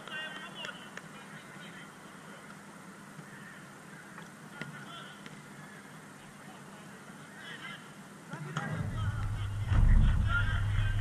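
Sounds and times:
steady low hum: 8.7 - 11.0.

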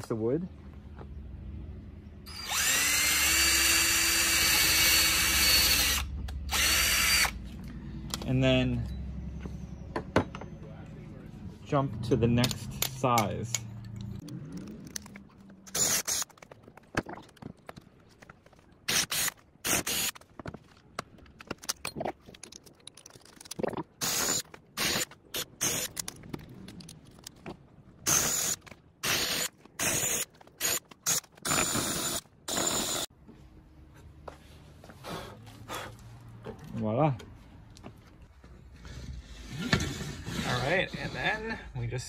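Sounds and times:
cordless drill boring into wood: 2.3 - 7.4, 18.9 - 20.1, 28.1 - 33.1.

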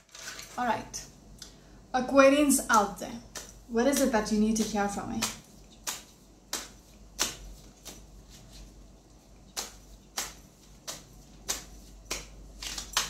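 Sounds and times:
cards being shuffled: 0.0 - 0.6, 2.7 - 8.8, 9.4 - 13.0.

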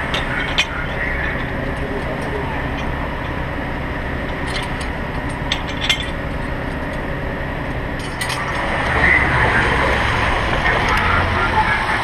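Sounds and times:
metallic clicks and clinks: 0.0 - 3.4, 4.2 - 7.0, 8.0 - 8.6
engine rumble: 0.0 - 12.0.

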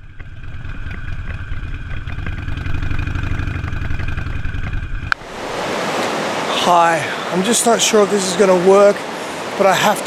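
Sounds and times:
motorcycle engine running: 0.0 - 5.2.

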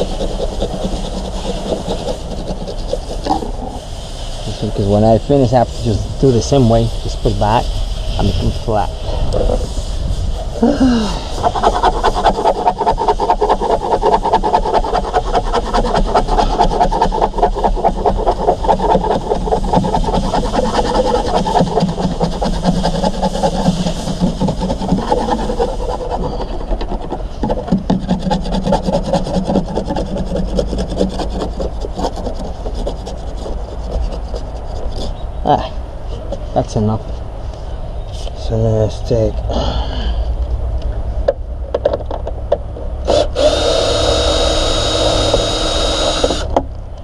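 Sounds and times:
tool scraping panel: 0.0 - 3.8, 11.3 - 35.2.

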